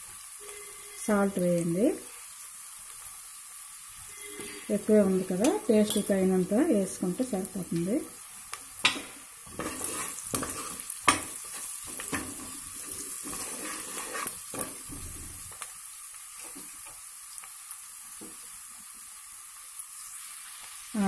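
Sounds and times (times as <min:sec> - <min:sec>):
onions sizzling in hot oil: 0:00.0 - 0:21.0
utensil scraping and knocking pan: 0:08.9 - 0:14.8.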